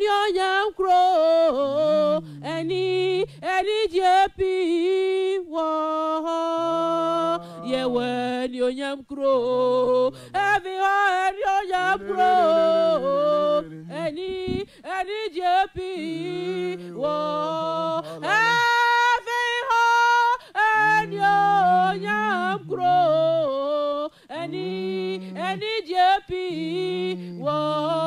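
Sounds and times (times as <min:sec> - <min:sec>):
woman singing unaccompanied: 0:00.0 - 0:28.0
singer breathing: 0:02.2 - 0:02.4, 0:03.2 - 0:03.4, 0:07.4 - 0:07.6, 0:10.1 - 0:10.4, 0:14.5 - 0:14.9, 0:18.0 - 0:18.2, 0:24.1 - 0:24.3.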